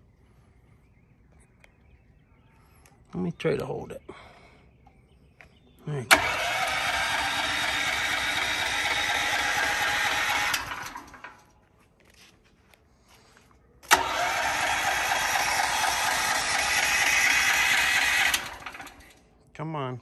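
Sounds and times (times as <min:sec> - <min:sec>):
electric starter cranking engine: 0:06.1 - 0:11.5, 0:13.8 - 0:19.2.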